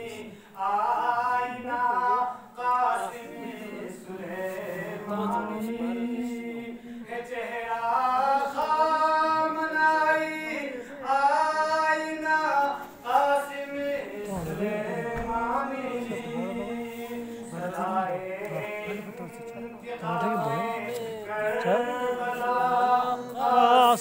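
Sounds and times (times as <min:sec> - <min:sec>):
man chanting: 0:08.8 - 0:24.0.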